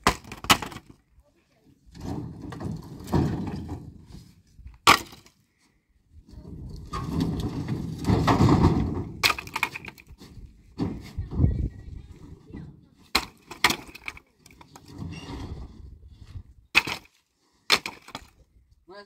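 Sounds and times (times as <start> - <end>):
wood cracking: 0.0 - 1.0, 4.8 - 5.4, 6.8 - 10.2, 13.0 - 15.1, 16.7 - 18.4.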